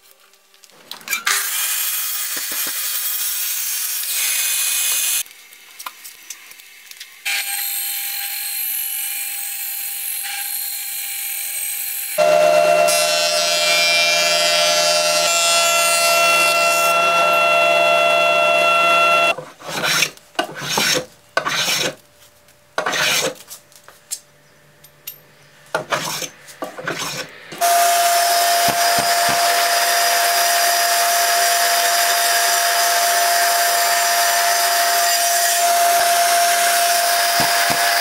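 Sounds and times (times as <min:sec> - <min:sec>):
table saw running: 0:12.0 - 0:19.4, 0:26.9 - 0:38.0
thickness planer whining hum: 0:12.0 - 0:22.0, 0:25.8 - 0:38.0
hand plane rasping strokes: 0:12.2 - 0:22.0, 0:22.8 - 0:23.4, 0:25.8 - 0:27.3.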